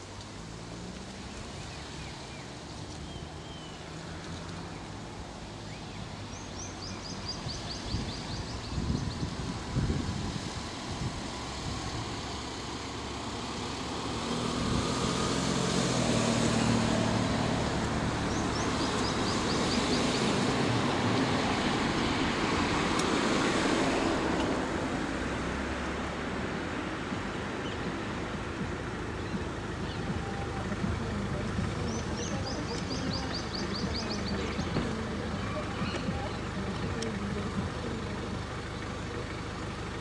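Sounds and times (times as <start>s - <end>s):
car passing by: 0.0s - 40.0s
steady road hum: 0.0s - 40.0s.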